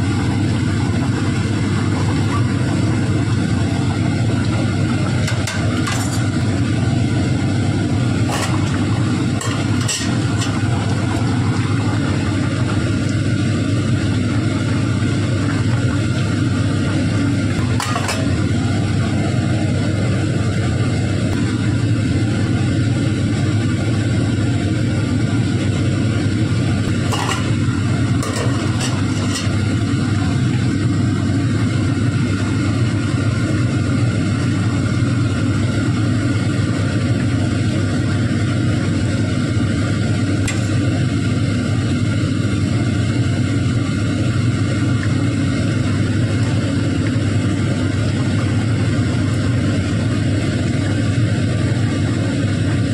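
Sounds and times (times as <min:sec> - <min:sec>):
utensil clinking on steel pot: 0:08.3 - 0:08.8, 0:09.4 - 0:10.6, 0:28.2 - 0:29.6.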